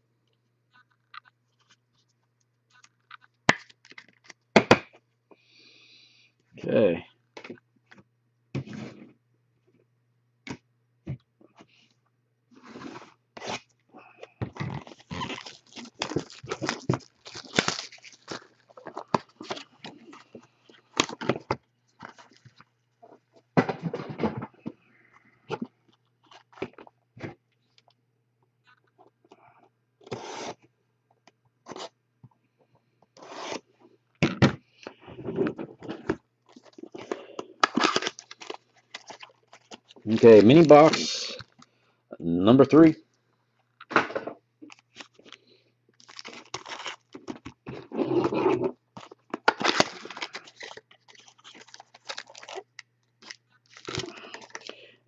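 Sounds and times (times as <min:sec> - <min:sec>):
foil packs crinkling: 0:14.6 - 0:22.6, 0:36.5 - 0:41.7, 0:44.6 - 0:48.0, 0:49.0 - 0:54.9.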